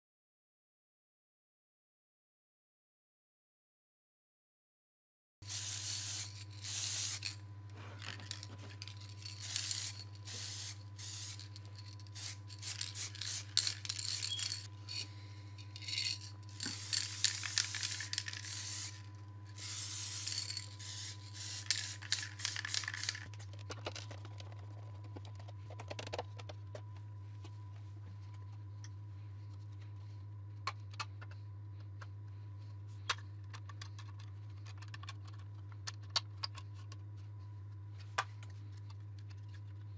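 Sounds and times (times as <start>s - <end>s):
steady low hum: 5.4s - 39.9s
aerosol spray can hissing: 5.5s - 7.4s, 8.2s - 14.7s, 15.8s - 23.3s.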